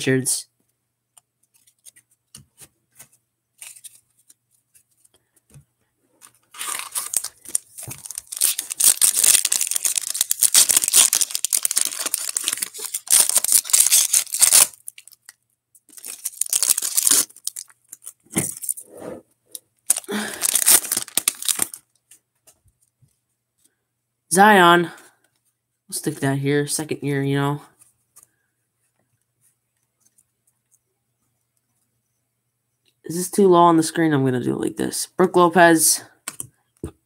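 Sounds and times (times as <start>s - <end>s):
foil wrapper tearing and crinkling: 6.4s - 15.3s, 15.9s - 18.8s, 19.9s - 21.8s.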